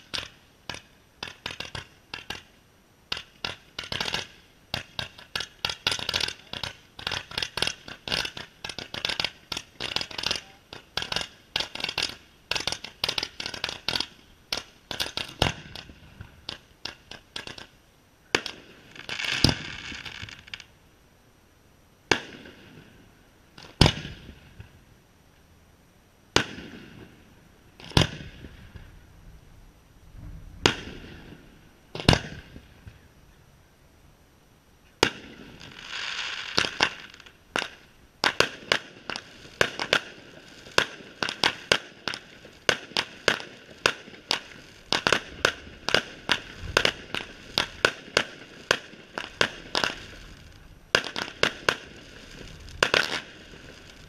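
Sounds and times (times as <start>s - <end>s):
fireworks cracks and bangs: 0.0s - 20.7s, 22.1s - 24.8s, 26.3s - 29.0s, 30.2s - 33.0s, 35.0s - 54.0s
firework crackle: 0.0s - 20.9s, 22.0s - 25.0s, 26.3s - 33.3s, 34.8s - 54.0s
firework shell bursts: 35.0s - 54.0s.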